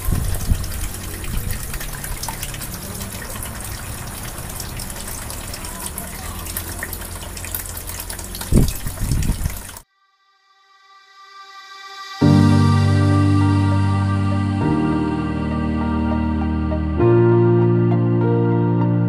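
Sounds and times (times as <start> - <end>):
water pump humming: 0.0 - 9.8
water splashing on wheel paddles: 0.0 - 9.8.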